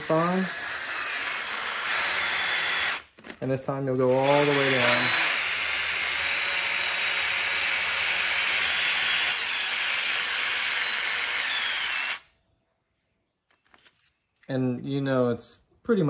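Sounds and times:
cordless drill tapping threads: 0.0s - 3.0s, 4.1s - 12.2s.

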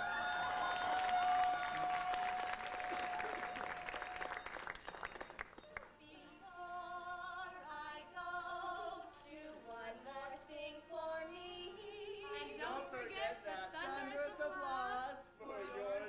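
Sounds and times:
audience applause: 0.0s - 5.9s
women singing together: 6.0s - 16.0s.

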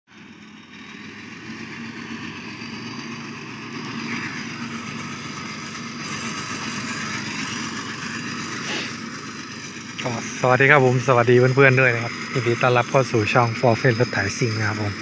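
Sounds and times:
diesel engine running: 0.1s - 15.0s.

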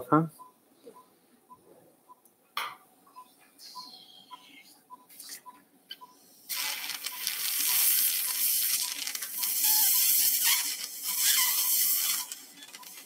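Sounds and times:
monitor beeping: 3.1s - 13.0s
surgical suction hissing: 6.5s - 13.0s.

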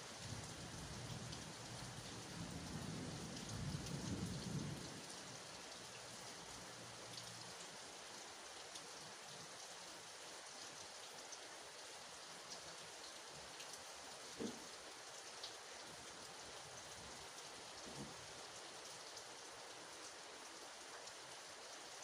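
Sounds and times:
rain falling on grass and leaves: 0.0s - 22.0s
low rumble of thunder: 0.2s - 5.5s.

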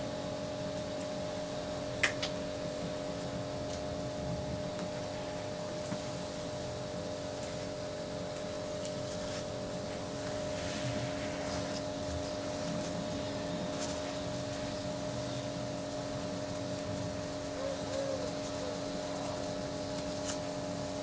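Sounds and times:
steady hiss and low hum: 0.0s - 21.0s.

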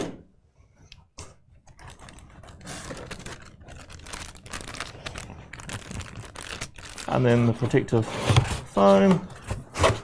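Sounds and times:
plastic bag crinkling: 1.7s - 7.8s.

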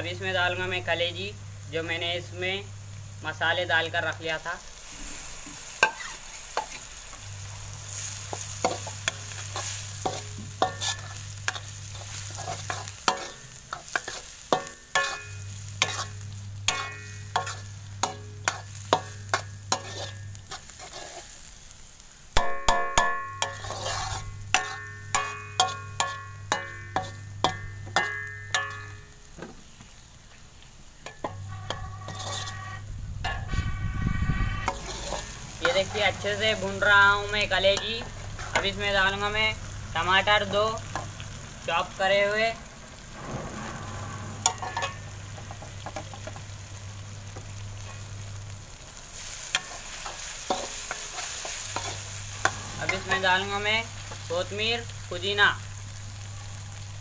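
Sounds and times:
oil sizzling: 0.0s - 57.0s
metal spatula clanking on pan: 5.8s - 6.8s, 8.3s - 21.0s, 22.4s - 29.2s, 31.0s - 33.6s, 34.5s - 36.1s, 43.2s - 46.5s, 49.6s - 54.3s.

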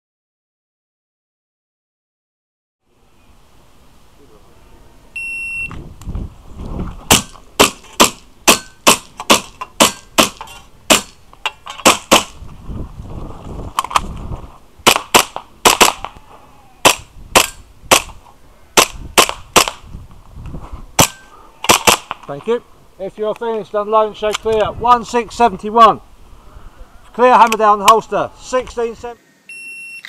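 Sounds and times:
airsoft pistol shots: 7.1s - 11.2s, 11.8s - 12.4s, 14.8s - 16.1s, 16.8s - 18.2s, 18.8s - 19.8s, 21.0s - 22.2s.

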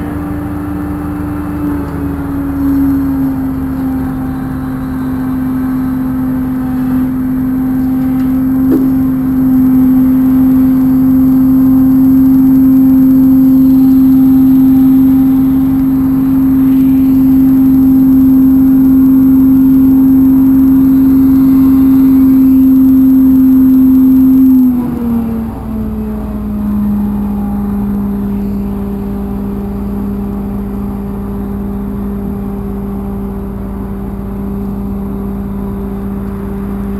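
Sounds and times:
truck diesel engine droning: 0.0s - 36.9s.

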